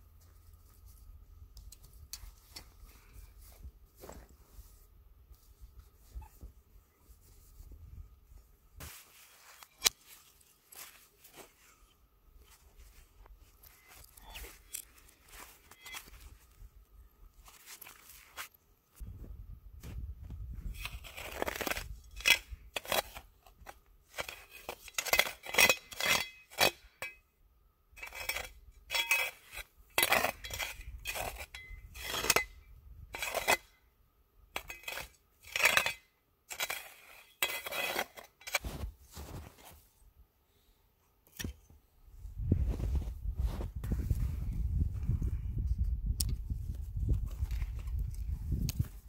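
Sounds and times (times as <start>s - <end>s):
shovel crunching into snow: 8.8s - 16.6s, 17.4s - 18.6s, 20.6s - 26.8s, 34.6s - 39.9s, 42.4s - 44.5s.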